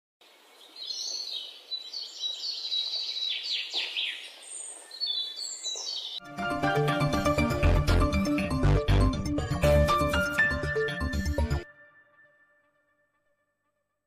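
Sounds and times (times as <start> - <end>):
birds chirping: 0.2 - 7.5
music: 6.2 - 14.0.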